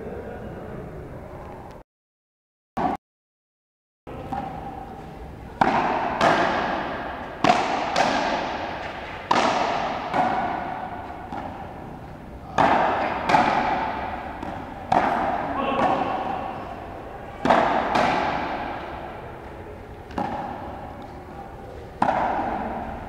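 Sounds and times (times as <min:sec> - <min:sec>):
ball hitting rackets and wall: 0:02.8 - 0:03.0, 0:04.1 - 0:23.0.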